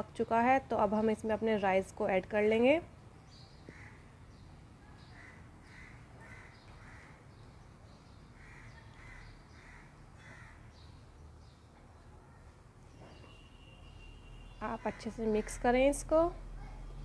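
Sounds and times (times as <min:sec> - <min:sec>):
crow cawing faintly: 0:03.6 - 0:04.1, 0:05.0 - 0:07.4, 0:08.4 - 0:10.8.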